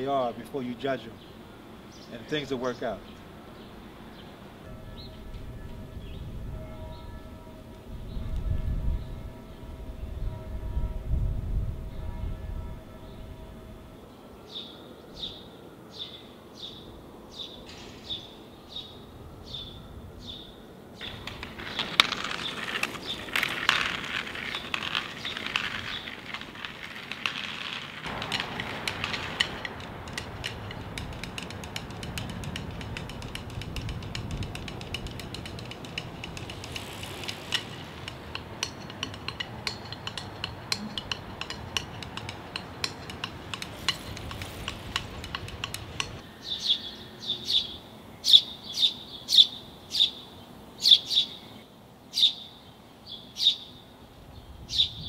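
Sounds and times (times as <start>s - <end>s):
low street hum: 0.0s - 53.1s
small clicks and clinks: 21.0s - 46.2s
bird chirping: 28.0s - 55.0s.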